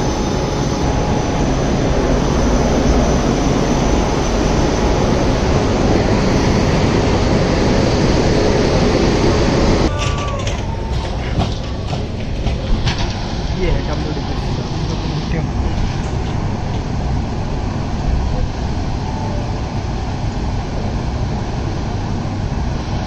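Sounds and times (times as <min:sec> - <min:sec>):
locomotive cooling blowers running: 0:00.0 - 0:23.0.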